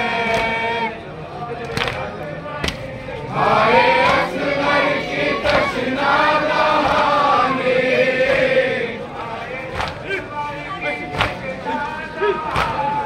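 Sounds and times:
men singing a lament in unison: 0.0s - 13.0s.

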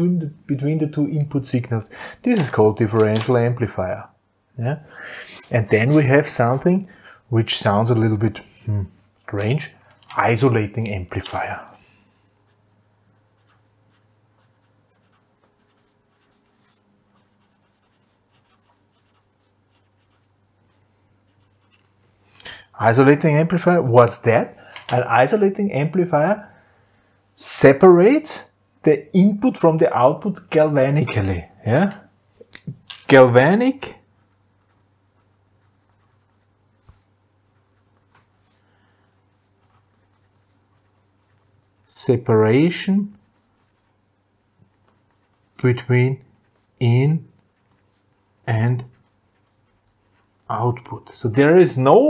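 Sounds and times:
felt-tip pen scratching on paper: 13.2s - 22.0s, 34.1s - 36.9s, 44.7s - 45.6s, 47.4s - 50.6s.

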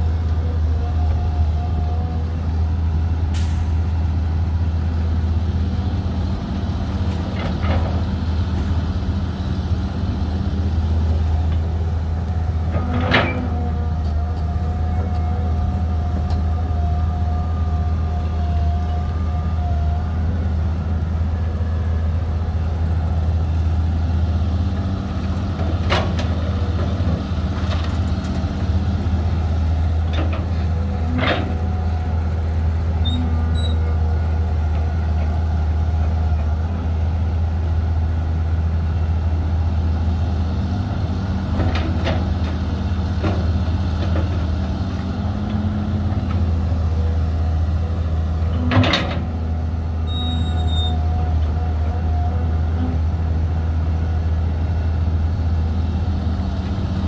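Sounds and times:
diesel engines humming: 0.0s - 57.0s.

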